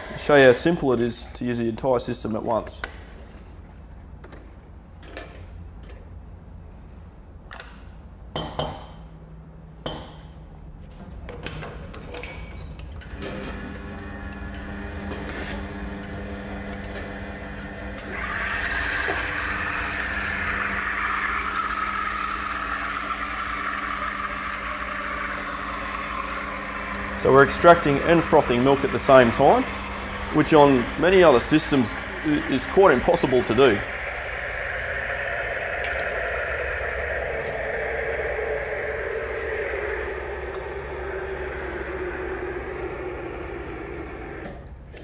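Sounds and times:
steady low hum: 0:18.0 - 0:45.0
steam wand hissing: 0:18.1 - 0:44.4.

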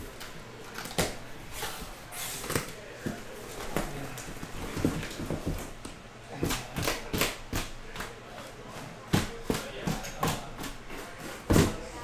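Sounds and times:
cardboard boxes tapping and knocking: 0:02.5 - 0:08.2, 0:09.0 - 0:11.8.

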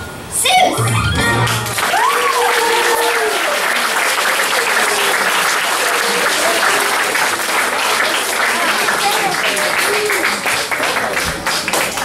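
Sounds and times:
voices cheering: 0:00.8 - 0:11.2
audience applauding: 0:01.4 - 0:12.0.

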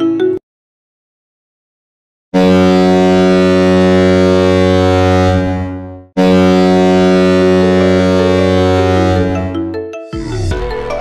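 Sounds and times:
hockey goal horn blasts: 0:02.4 - 0:09.4
short tune: 0:02.4 - 0:11.0.

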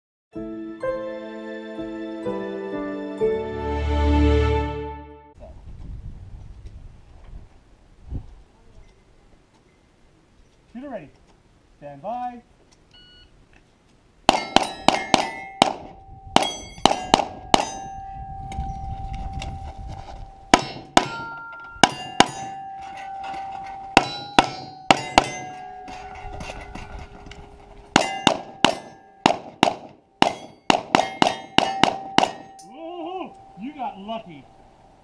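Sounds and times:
steel target plate clanging: 0:14.3 - 0:18.7, 0:20.4 - 0:34.2
rapid pistol shots: 0:28.3 - 0:32.3.

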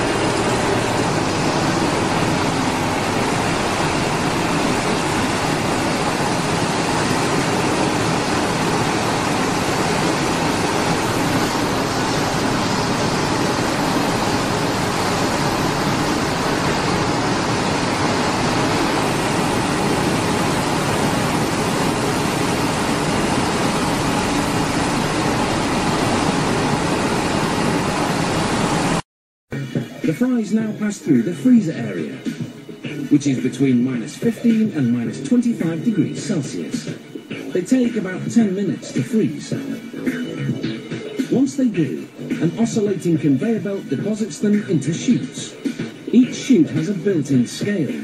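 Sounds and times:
processing machinery rushing: 0:00.0 - 0:29.0.

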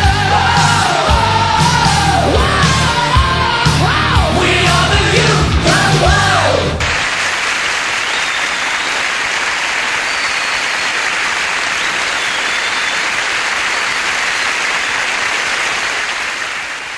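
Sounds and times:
audience applauding: 0:06.8 - 0:16.9.

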